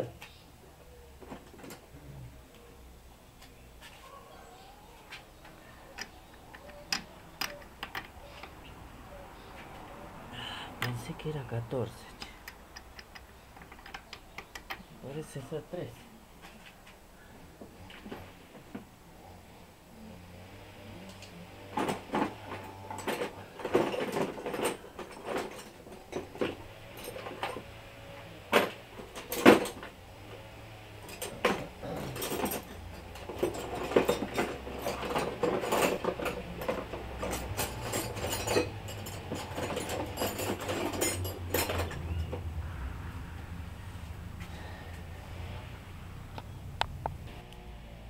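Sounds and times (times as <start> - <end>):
metal tools clinking: 21.2 - 30.3, 31.0 - 42.4
low hum: 41.2 - 48.0.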